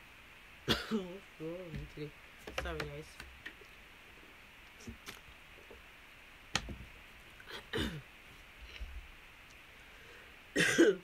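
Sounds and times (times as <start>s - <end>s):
person clearing throat: 0.7s - 1.1s, 7.5s - 8.0s, 10.6s - 11.0s.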